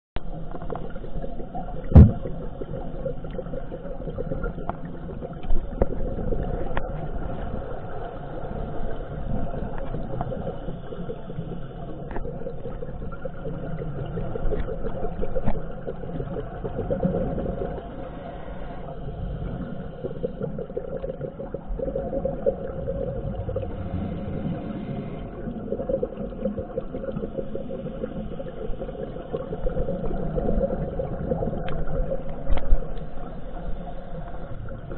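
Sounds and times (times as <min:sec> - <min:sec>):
low underwater rumble: 0:00.2 - 0:34.9
faint clicks: 0:31.6 - 0:33.2.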